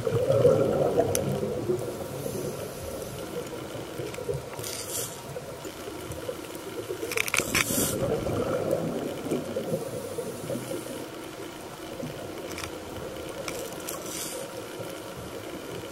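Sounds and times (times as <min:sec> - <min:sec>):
exhaled bubbles underwater: 0:00.0 - 0:04.6, 0:07.7 - 0:11.1
regulator inhale hiss: 0:01.9 - 0:03.4, 0:04.6 - 0:05.4, 0:07.5 - 0:08.2, 0:09.7 - 0:11.3, 0:13.9 - 0:14.6.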